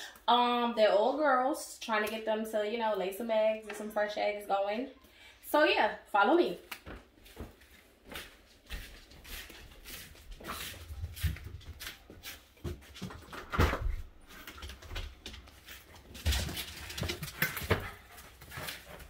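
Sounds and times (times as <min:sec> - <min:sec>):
footsteps walking: 0:06.7 - 0:19.0.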